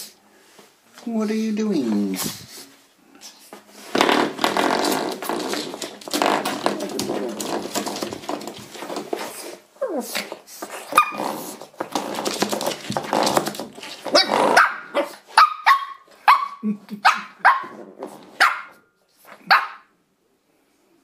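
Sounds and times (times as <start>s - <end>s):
rough noise: 3.6s - 9.6s, 10.2s - 15.1s
puppy barking: 14.1s - 17.7s, 18.4s - 18.9s, 19.5s - 19.9s.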